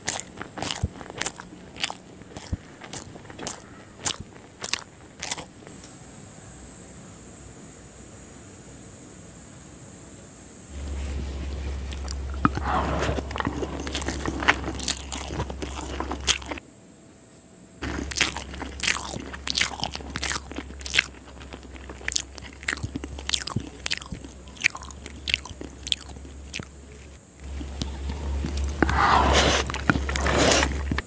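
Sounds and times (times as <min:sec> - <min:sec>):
person chewing noodles: 0:00.0 - 0:05.5, 0:10.8 - 0:16.6, 0:17.8 - 0:31.0
wet mouth clicks and smacks: 0:00.0 - 0:05.5.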